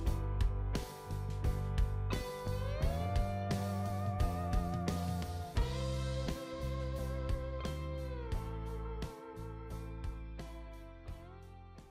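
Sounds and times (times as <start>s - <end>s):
instrumental background music: 0.0s - 11.9s.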